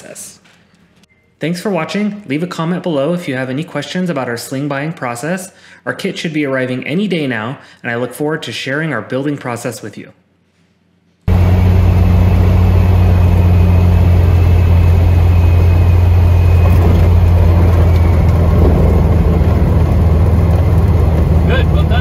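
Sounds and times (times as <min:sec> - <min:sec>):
light aircraft engine and propeller: 0:11.3 - 0:22.0.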